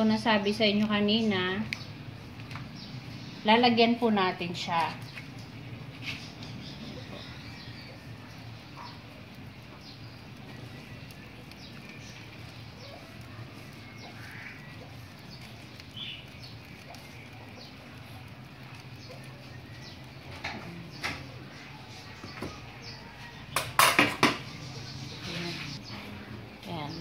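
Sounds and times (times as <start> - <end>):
faint bird chirps: 9.7 - 17.9.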